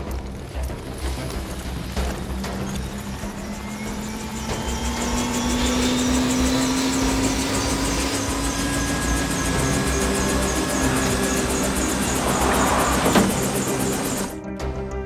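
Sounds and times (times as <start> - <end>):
rotor beating: 0.0 - 14.4
helicopter turbine whine: 0.0 - 14.5.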